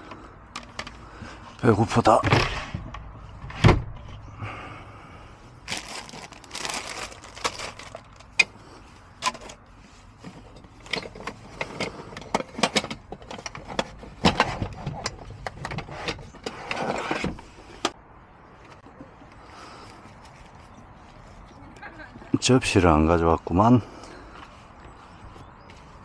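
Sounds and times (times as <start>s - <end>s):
packaging rustling: 5.6s - 8.4s.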